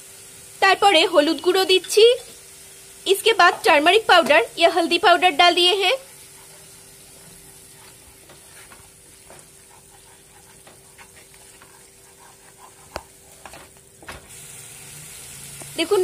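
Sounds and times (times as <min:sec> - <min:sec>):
light sizzle: 0:00.0 - 0:16.0
wooden spatula scraping pan: 0:05.8 - 0:13.8.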